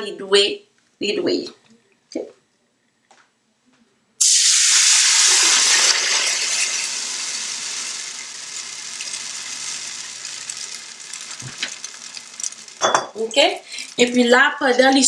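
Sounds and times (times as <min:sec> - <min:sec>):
liquid sizzling in hot pot: 0:04.2 - 0:14.8.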